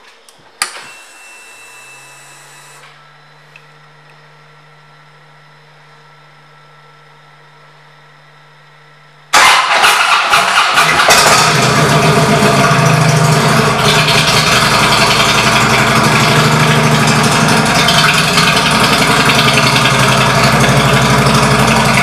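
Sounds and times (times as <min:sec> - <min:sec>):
click: 0:03.5 - 0:04.2
motorcycle engine starting: 0:09.3 - 0:22.0.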